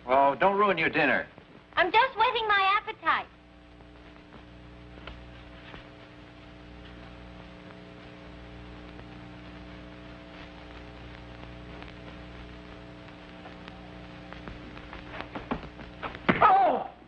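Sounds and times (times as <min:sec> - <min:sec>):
film soundtrack hum and hiss: 0:00.0 - 0:17.0
faint clicks: 0:10.4 - 0:16.3.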